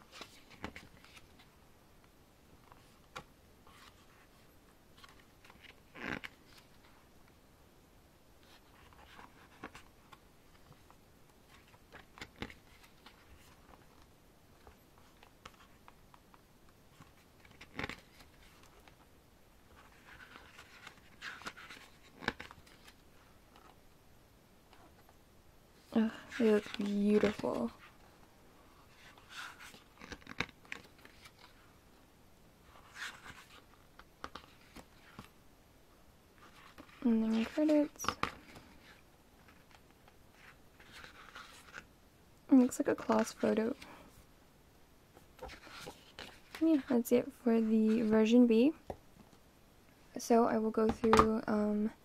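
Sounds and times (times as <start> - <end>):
pages turning: 0.0 - 1.6, 2.6 - 4.4, 5.0 - 7.0, 8.4 - 16.1, 16.9 - 19.1, 19.7 - 23.8, 26.1 - 28.0, 28.8 - 31.7, 32.6 - 35.3, 36.4 - 41.9, 45.2 - 46.9.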